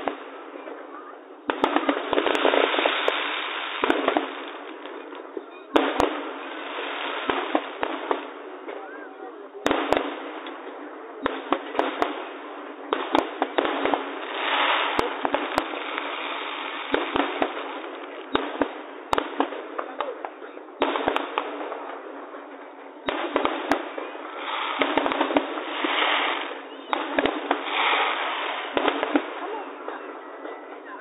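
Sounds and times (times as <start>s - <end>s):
background rumble of fireworks: 0.0s - 31.0s
firework shells bursting: 9.6s - 29.4s.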